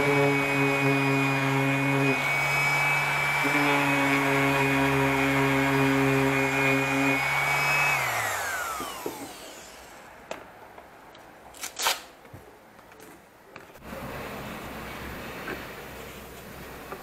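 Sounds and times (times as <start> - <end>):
orbital sander whining: 0.0 - 10.2
sander clicks and scrape: 7.2 - 10.0.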